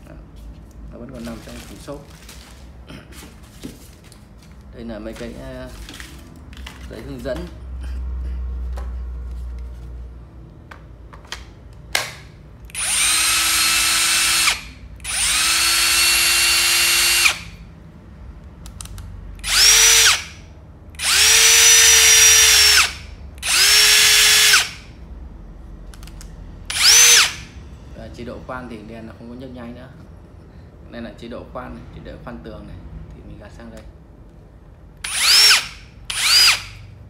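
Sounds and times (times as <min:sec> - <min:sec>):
cordless drill whining: 0:12.7 - 0:17.6, 0:19.4 - 0:20.4, 0:21.0 - 0:24.9, 0:26.7 - 0:27.5, 0:35.0 - 0:36.9.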